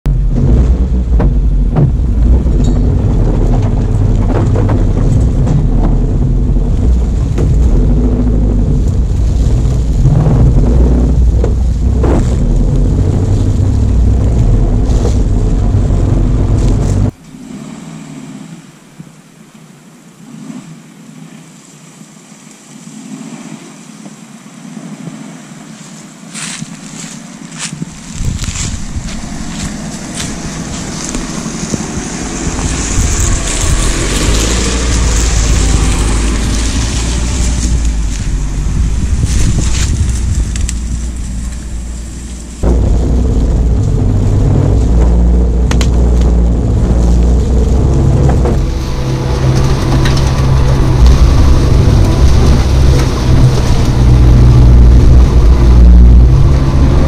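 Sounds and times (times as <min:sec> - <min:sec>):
wind on microphone: 0:00.0 - 0:19.2, 0:23.1 - 0:57.0
car engine rumble: 0:00.0 - 0:57.0
knocks from rough ground: 0:00.1 - 0:17.2, 0:26.3 - 0:57.0
approaching car engine: 0:22.9 - 0:57.0.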